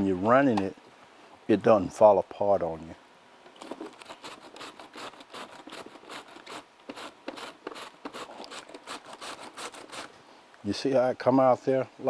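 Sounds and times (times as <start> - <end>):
cabbage rasping on slicer blade: 4.0 - 10.1.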